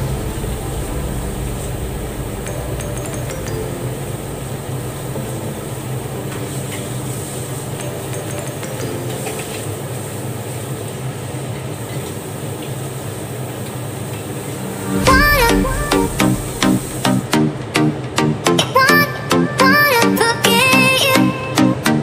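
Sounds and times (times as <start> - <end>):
low hum: 0.0 - 7.7, 13.4 - 18.2
food simmering hiss: 0.0 - 17.2.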